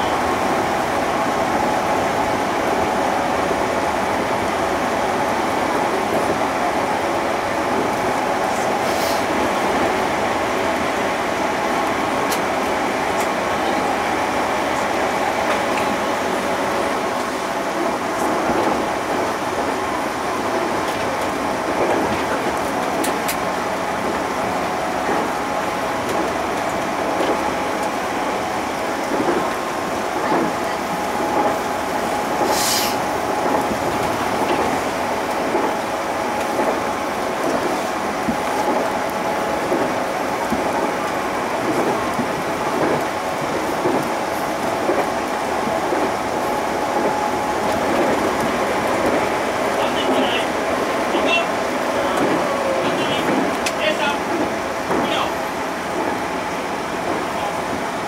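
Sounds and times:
wheels rumbling on rail: 0:00.0 - 0:58.0
brief high hiss: 0:32.4 - 0:33.0.

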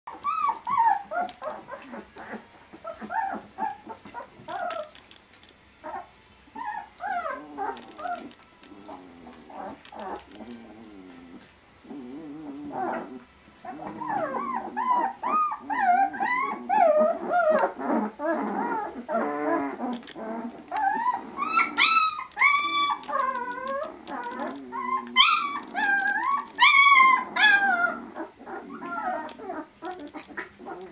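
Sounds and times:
puppies whimpering and squeaking: 0:00.1 - 0:30.9
puppy grunts: 0:08.9 - 0:30.9.

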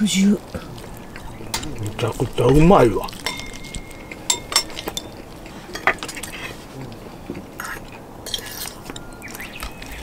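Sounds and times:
cutlery scraping a metal plate: 0:07.6 - 0:08.9.

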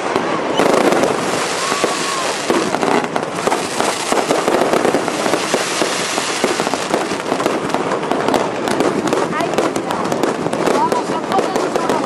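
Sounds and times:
fireworks crackling and banging: 0:00.0 - 0:12.0.

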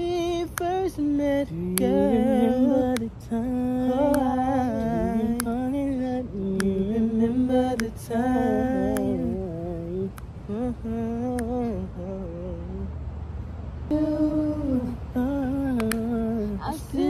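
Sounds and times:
voices singing and humming: 0:00.0 - 0:13.2, 0:13.8 - 0:17.0
sharp clicks: 0:15.8 - 0:16.1.

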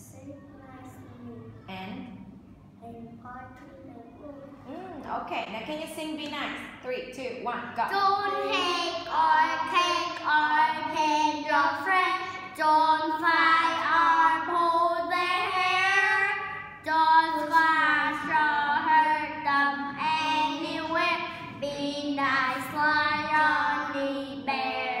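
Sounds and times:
boys singing a children's song: 0:07.9 - 0:25.0.

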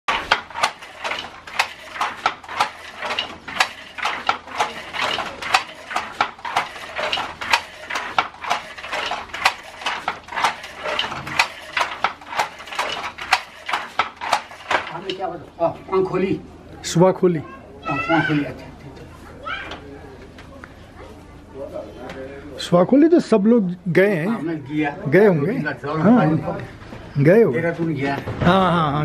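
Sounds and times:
handloom clacking: 0:00.1 - 0:15.3.

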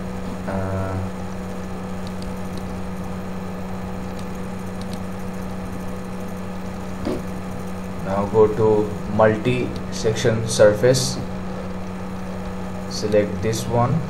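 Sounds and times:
low background hum: 0:00.0 - 0:14.0
faint clicks: 0:04.1 - 0:05.0.

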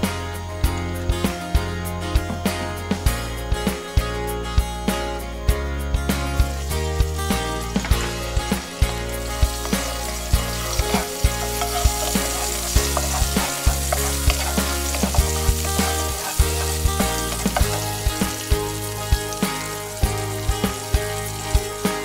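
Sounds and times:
background music: 0:00.0 - 0:22.0
garlic sizzling in oil: 0:06.1 - 0:22.0
wooden spoon stirring in pan: 0:09.4 - 0:18.4.

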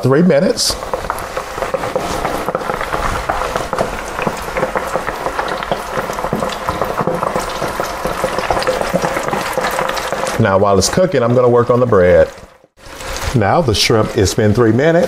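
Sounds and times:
shrimp deep-frying in oil: 0:00.0 - 0:15.0.

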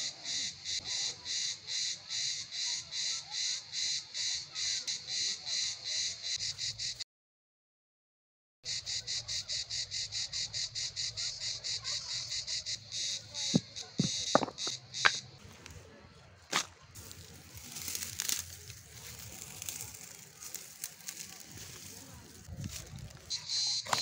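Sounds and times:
insect chirping in rapid pulses: 0:00.0 - 0:07.0, 0:08.7 - 0:15.4, 0:17.0 - 0:24.0
stones knocking on ground: 0:13.5 - 0:15.6, 0:16.5 - 0:21.3
dry grass rustling and crackling: 0:16.5 - 0:24.0.

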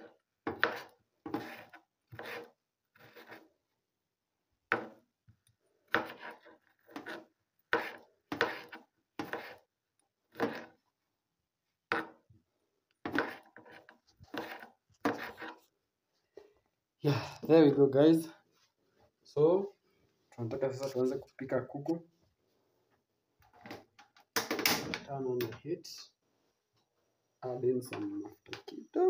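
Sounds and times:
knife chopping on cutting board: 0:00.5 - 0:01.6, 0:05.9 - 0:09.6, 0:13.1 - 0:13.5.

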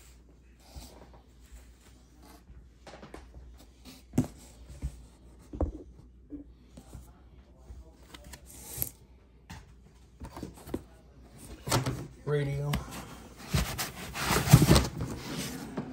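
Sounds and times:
cardboard and foam rustling: 0:10.2 - 0:15.9.

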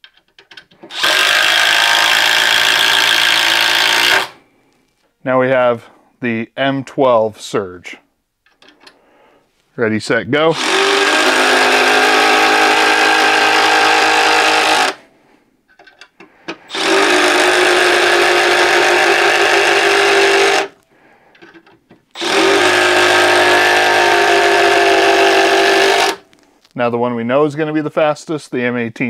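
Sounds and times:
impact driver buzzing: 0:00.8 - 0:04.4, 0:10.5 - 0:15.0, 0:16.6 - 0:20.8, 0:22.1 - 0:26.3.

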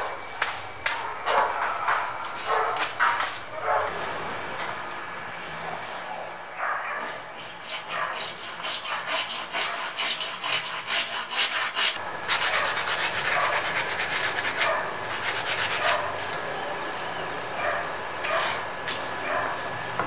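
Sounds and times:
hacksaw cutting acrylic: 0:07.4 - 0:16.0
sandpaper rubbing acrylic edge: 0:07.4 - 0:16.1.

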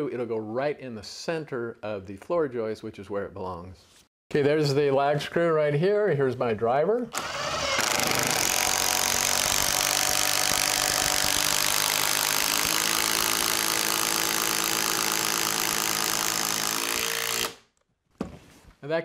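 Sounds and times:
cordless driver running: 0:07.2 - 0:17.6.

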